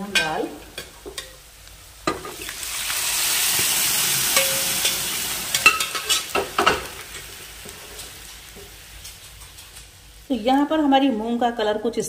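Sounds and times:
food sizzling in hot oil: 0:00.0 - 0:11.0
spoon scraping in a pan: 0:04.3 - 0:09.9.

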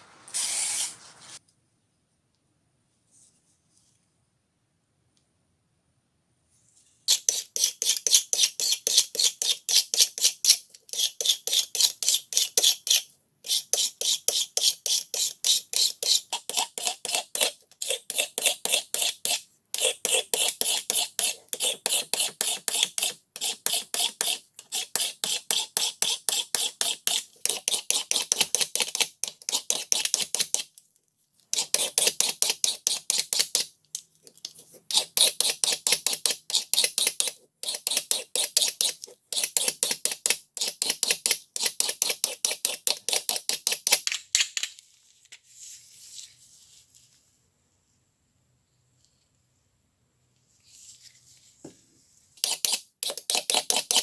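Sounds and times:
file scraping wooden handle: 0:07.1 - 0:28.6, 0:34.9 - 0:43.5, 0:52.4 - 0:54.0.

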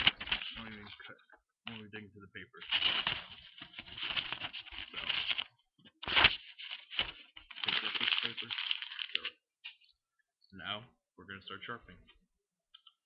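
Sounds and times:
paper crinkling under a knife: 0:00.0 - 0:01.1, 0:02.6 - 0:09.8.

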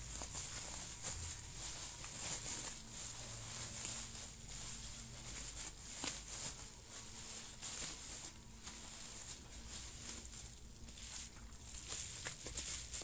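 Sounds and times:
bubble wrap rustling and crinkling: 0:00.0 - 0:13.0.

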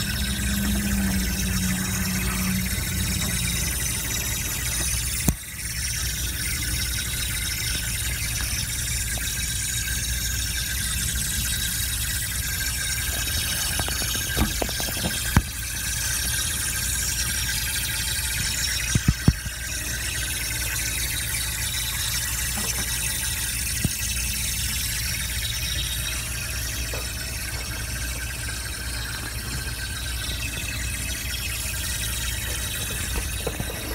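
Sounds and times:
low steady hum: 0:00.0 - 0:33.9
refrigerant piping hissing: 0:00.0 - 0:33.9.

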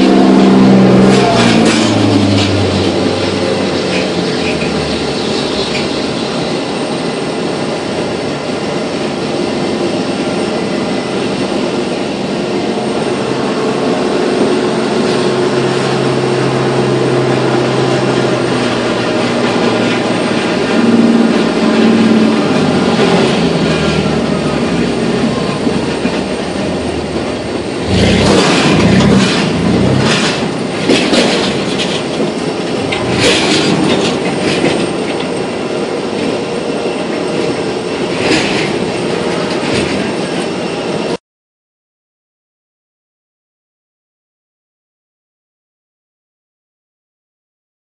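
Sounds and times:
baggage tug engine: 0:00.0 - 0:41.2
jet engines whining: 0:00.0 - 0:41.2
loud clatters and thumps: 0:25.2 - 0:35.3.

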